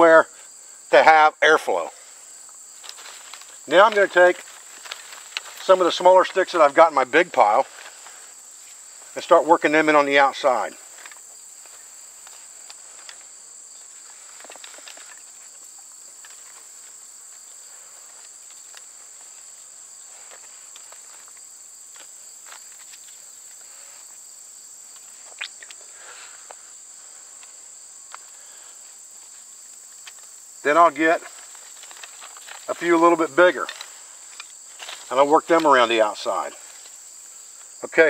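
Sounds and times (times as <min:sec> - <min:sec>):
dry sticks rustling and clicking: 0:02.8 - 0:06.5, 0:10.9 - 0:19.5, 0:20.2 - 0:23.7, 0:24.9 - 0:25.8, 0:29.1 - 0:30.4, 0:31.2 - 0:35.8.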